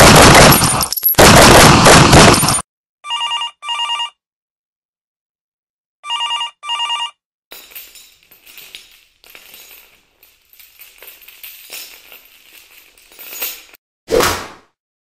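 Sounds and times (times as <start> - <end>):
telephone ringing: 3.1 - 4.2, 6.0 - 7.2
metal chain rattling: 7.5 - 13.8.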